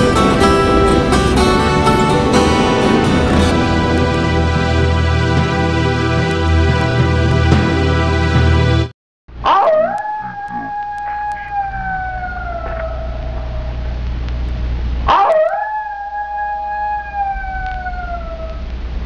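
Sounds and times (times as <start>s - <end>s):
long howls: 0.0s - 6.0s, 9.4s - 13.9s, 15.1s - 18.7s
steady low rumble: 0.0s - 8.9s, 10.3s - 15.1s, 17.2s - 19.0s.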